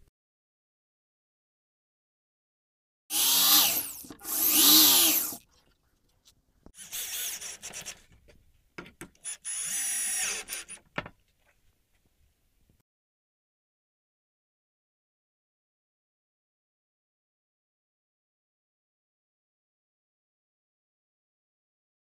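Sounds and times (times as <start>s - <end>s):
cordless drill driving screws: 3.1s - 5.4s, 6.8s - 7.9s, 9.2s - 10.8s.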